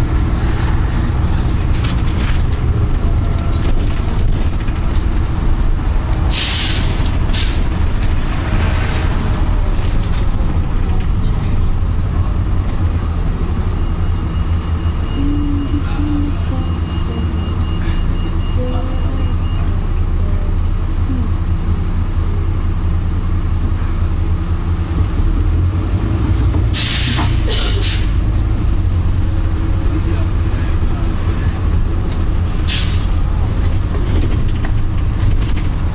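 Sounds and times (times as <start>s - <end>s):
bus engine running: 0.0s - 35.9s.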